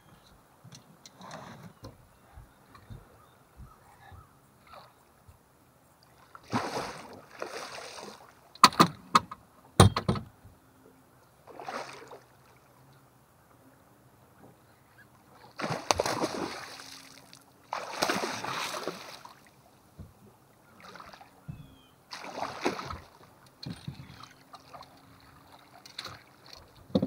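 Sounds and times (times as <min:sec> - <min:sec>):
fish splashing at the surface: 0:06.4 - 0:08.3, 0:11.5 - 0:12.2, 0:15.4 - 0:19.5, 0:22.1 - 0:23.2.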